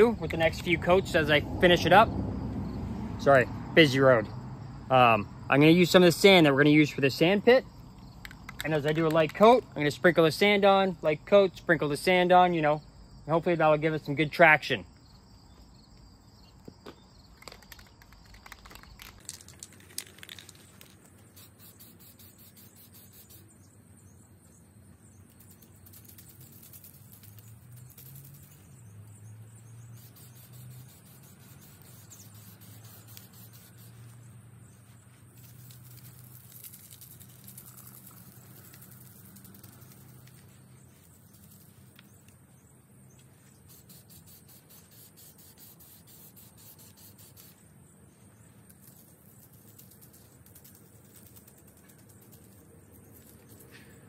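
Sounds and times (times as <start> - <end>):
crickets chirping: 0.0 - 54.0
sharp clicks: 8.0 - 9.6
aerosol spray can hissing: 19.9 - 23.5, 25.4 - 28.6, 29.8 - 34.2, 43.6 - 47.6.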